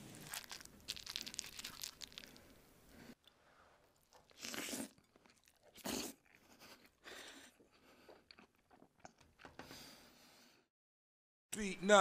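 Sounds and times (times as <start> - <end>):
chewing with wet clicks: 7.6 - 9.5.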